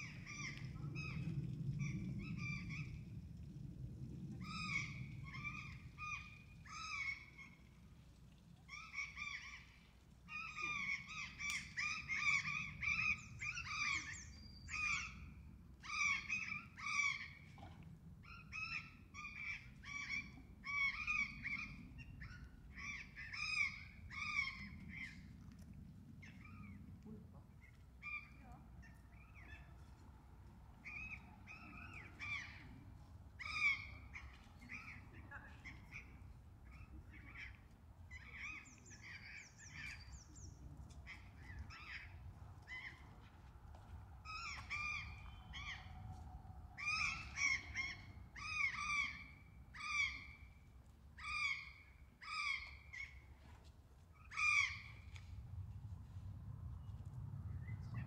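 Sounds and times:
low background rumble: 0.0 - 51.2, 54.0 - 58.0.

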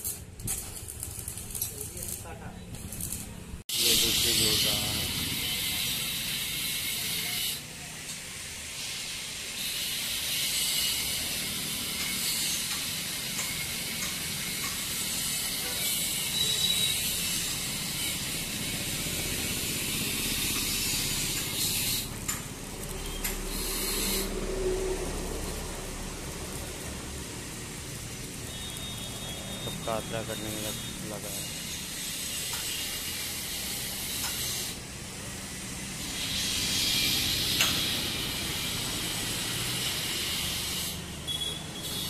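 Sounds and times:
welding arc crackling and hissing: 0.0 - 42.0.

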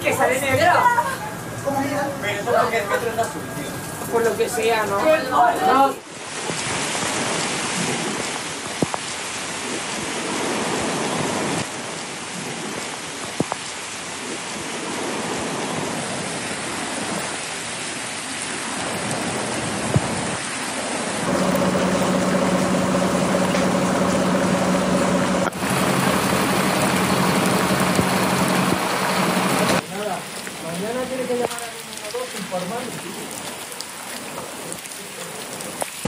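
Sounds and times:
torrential rain: 0.0 - 36.0
low droning hum: 21.2 - 29.8.

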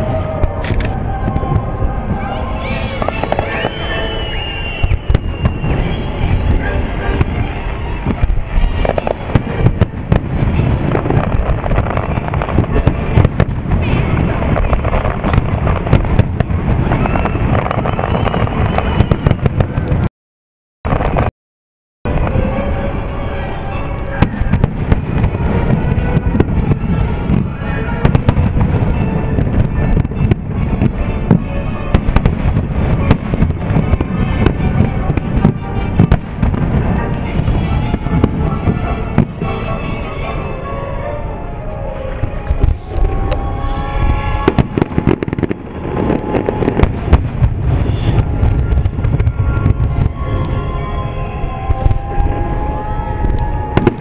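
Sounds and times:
music playing: 0.0 - 16.6, 22.1 - 54.0
fireworks bursting: 0.0 - 20.1, 20.9 - 21.3, 22.1 - 54.0
low rumble: 41.3 - 54.0.

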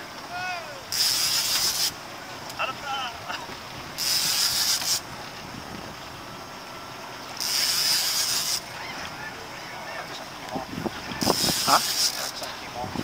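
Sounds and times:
water noise: 0.0 - 13.0
wind: 0.0 - 13.0
loud hiss: 11.2 - 12.4.

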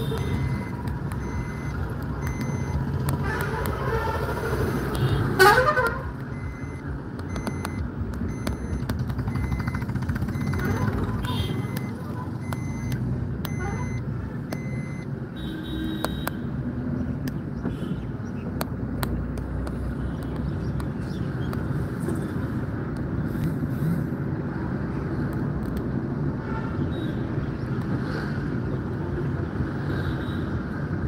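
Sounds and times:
car engine and tyre rumble: 0.0 - 31.0
high beep: 0.1 - 2.8, 6.3 - 10.6, 11.3 - 14.0, 14.6 - 15.1.

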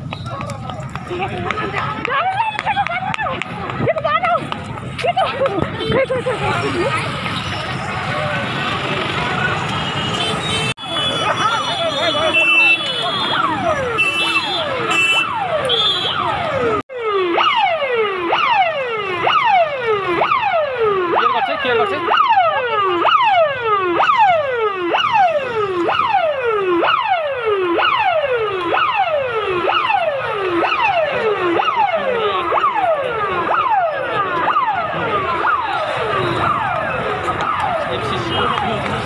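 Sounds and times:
ambulance siren whooping: 10.9 - 39.0.

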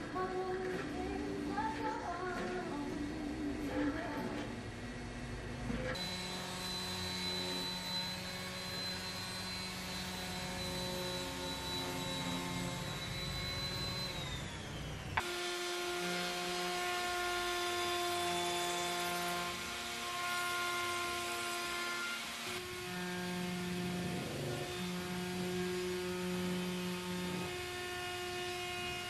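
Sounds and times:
router whining: 5.6 - 29.0
orbital sander whining: 5.9 - 29.0.

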